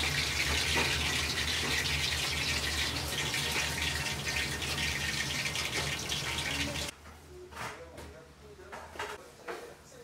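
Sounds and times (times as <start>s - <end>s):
hot oil sizzling and crackling: 0.0s - 6.9s.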